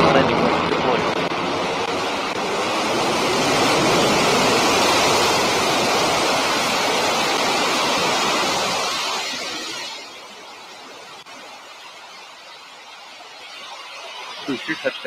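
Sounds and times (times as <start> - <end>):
rocket engine roaring: 0.0 - 11.3.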